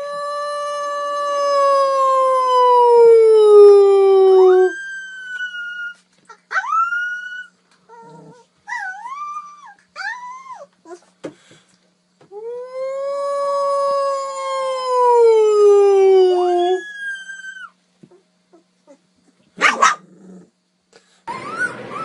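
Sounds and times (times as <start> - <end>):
puppy howling: 0.0 - 11.0, 12.4 - 17.8, 21.3 - 22.0.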